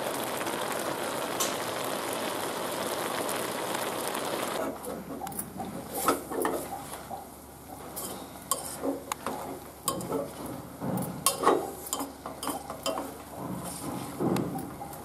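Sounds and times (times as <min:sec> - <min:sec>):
utensil scraping a metal pot: 0:07.8 - 0:10.4, 0:11.3 - 0:14.2.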